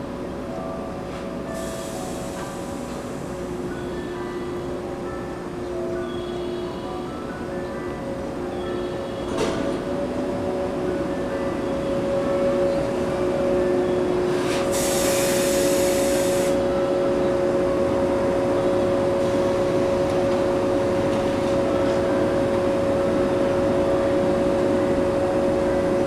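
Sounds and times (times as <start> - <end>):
electric train equipment humming: 0.0 - 26.0
air hissing: 14.4 - 16.6.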